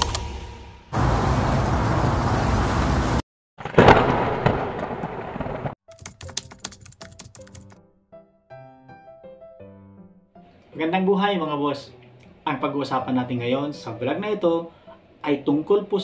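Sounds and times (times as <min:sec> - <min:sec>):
sharp clicks: 0:00.0 - 0:00.4
explosion effect: 0:00.0 - 0:05.8.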